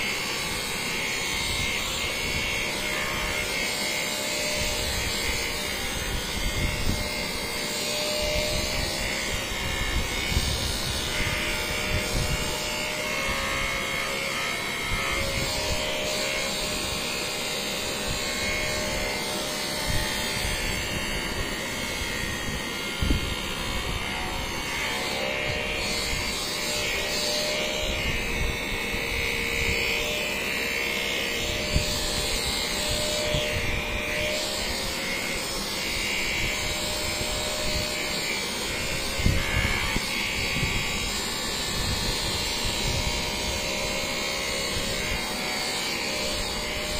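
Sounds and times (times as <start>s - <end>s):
electric massager motor hum: 0.0s - 46.9s.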